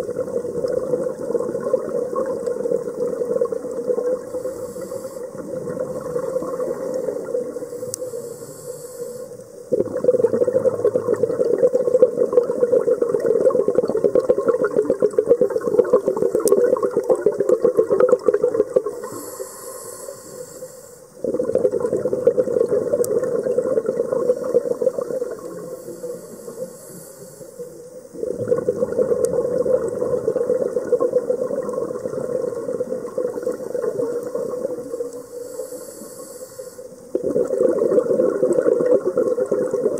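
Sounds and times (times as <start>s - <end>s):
diver exhaling bubbles: 0.0s - 7.7s, 9.7s - 19.6s, 21.2s - 26.6s, 28.1s - 35.2s, 37.1s - 39.9s
regulator inhalation hiss: 4.3s - 5.4s, 7.6s - 9.6s, 18.9s - 21.2s, 25.4s - 28.0s, 35.2s - 37.1s.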